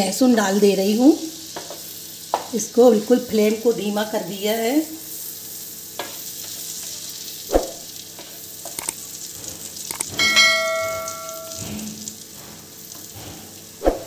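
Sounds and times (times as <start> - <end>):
butter and garlic sizzling in pan: 0.0 - 13.9
metallic clang: 9.9 - 12.1.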